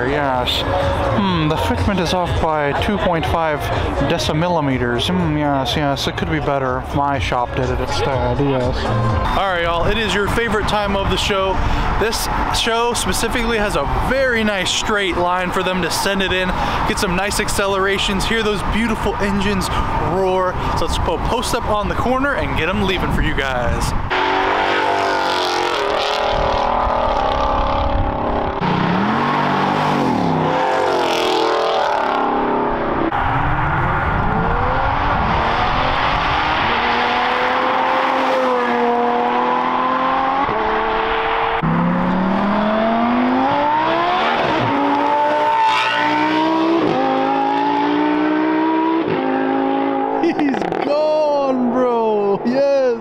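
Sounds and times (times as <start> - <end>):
cars accelerating hard: 23.9 - 51.3.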